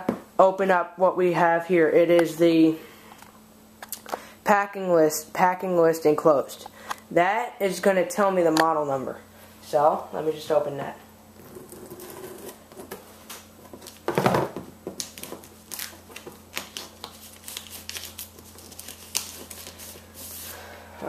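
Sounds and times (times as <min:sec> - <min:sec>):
crinkling plastic and paper: 0:14.9 - 0:20.5.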